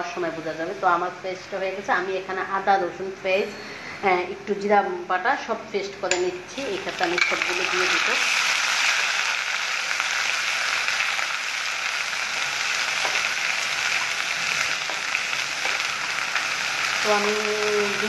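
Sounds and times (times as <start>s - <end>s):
food sizzling in hot oil: 6.3s - 18.0s.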